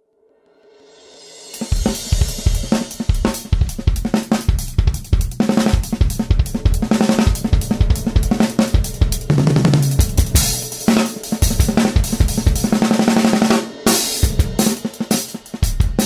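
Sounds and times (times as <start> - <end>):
fast drum kit beat: 1.4 - 16.0
held low note: 5.9 - 13.3.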